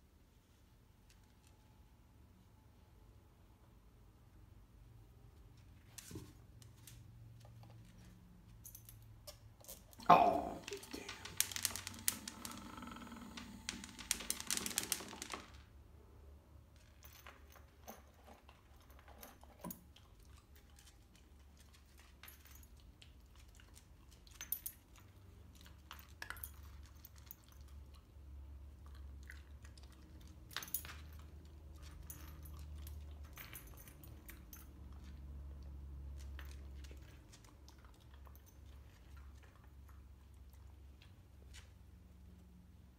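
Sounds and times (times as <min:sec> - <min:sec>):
dog crunching kibble: 0:13.4 - 0:15.6, 0:17.6 - 0:33.4, 0:34.0 - 0:41.6
dry food rattling from feeder: 0:13.4 - 0:15.6.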